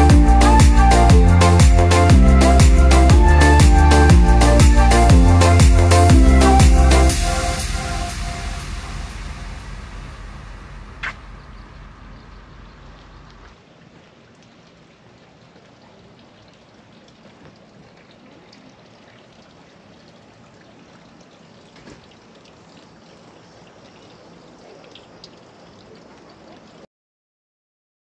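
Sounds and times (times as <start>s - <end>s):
water trickling: 0.0s - 26.9s
small water drips: 11.0s - 26.9s.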